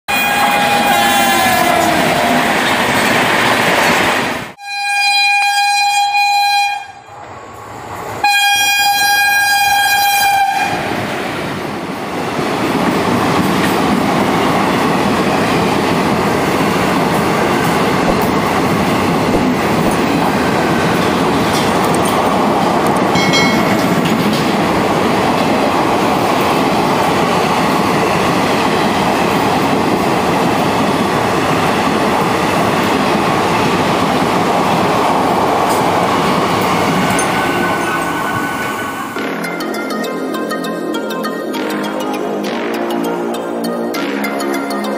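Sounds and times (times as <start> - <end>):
locomotive horn blasts: 0.1 - 1.9, 4.6 - 7.1, 8.2 - 10.8
train passing at speed: 0.1 - 4.6, 6.4 - 44.9.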